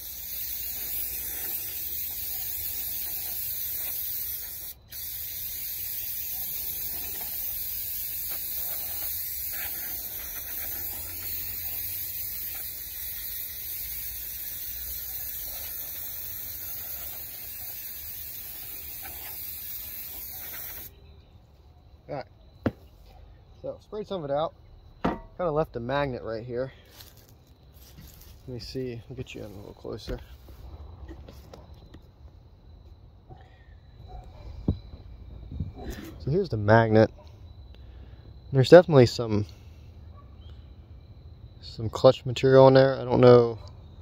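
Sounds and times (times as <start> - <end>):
aerosol can spraying: 0.0 - 20.9.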